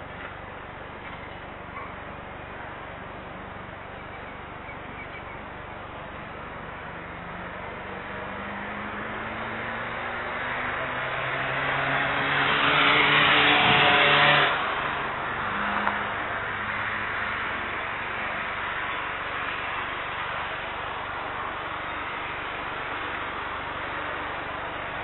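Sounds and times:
road vehicle passing: 0.0 - 25.0.

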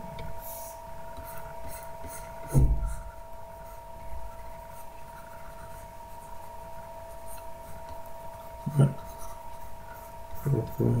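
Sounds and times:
faint electrical whine: 0.0 - 11.0
stylus scratching on drawing tablet: 0.4 - 11.0
dull thump: 2.4 - 3.0.

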